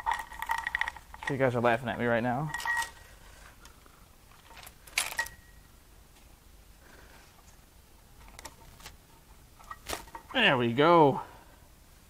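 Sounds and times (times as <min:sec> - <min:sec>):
metal engine parts clinking: 0:00.0 - 0:03.1, 0:04.4 - 0:05.6.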